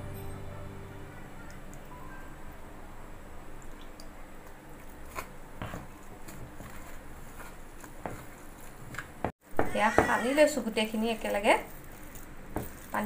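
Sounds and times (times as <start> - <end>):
hand squishing wet mixture: 3.7 - 9.0, 10.8 - 13.0.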